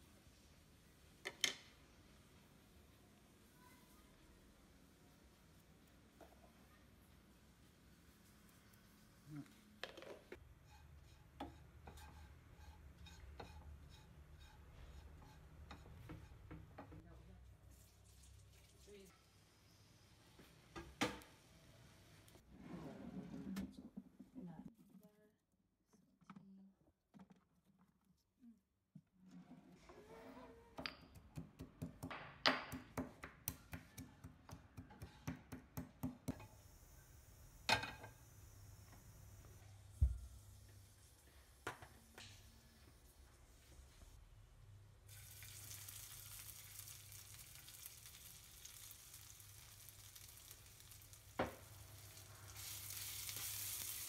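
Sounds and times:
spoon stirring rice in pan: 10.4 - 16.8
faint steady hiss: 45.0 - 54.0.

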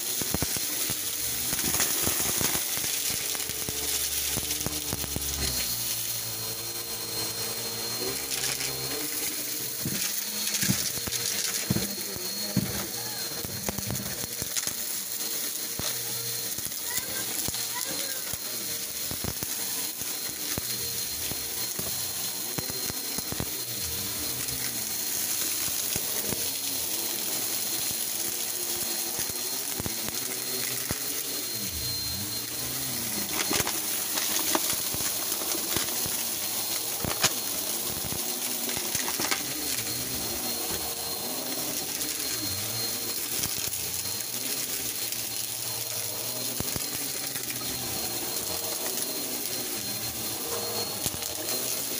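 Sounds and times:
debris ticking and crackling: 0.0 - 5.9, 31.8 - 37.4, 38.0 - 40.9
vacuum cleaner motor: 0.0 - 51.9.

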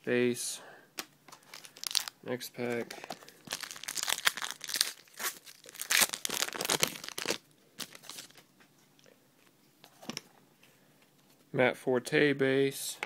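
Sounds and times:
wrapper tearing and crinkling: 1.5 - 2.2, 3.0 - 8.4.

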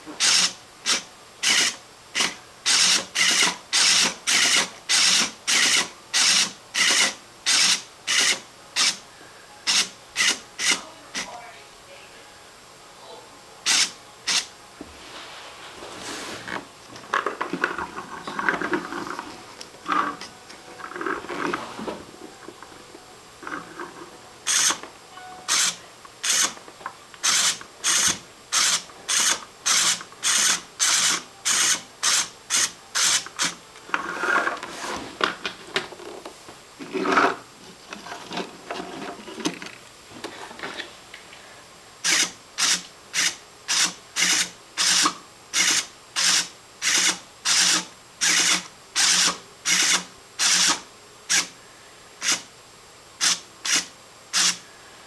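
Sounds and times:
motor and gears rasping: 16.4 - 22.7, 23.4 - 24.8, 25.5 - 26.6, 27.2 - 35.0.

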